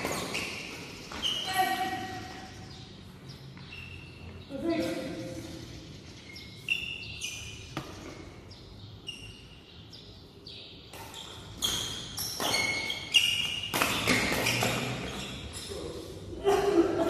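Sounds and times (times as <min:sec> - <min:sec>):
rackets hitting shuttlecock: 0:00.0 - 0:00.8, 0:10.9 - 0:15.3
shoes squeaking on court: 0:00.0 - 0:05.4, 0:06.2 - 0:09.7, 0:10.9 - 0:16.2.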